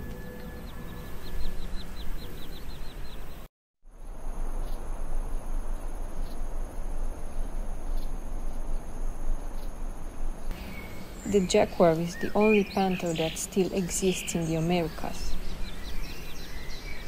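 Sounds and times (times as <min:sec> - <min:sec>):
background hiss: 0:00.0 - 0:17.0
high insect drone: 0:03.9 - 0:17.0.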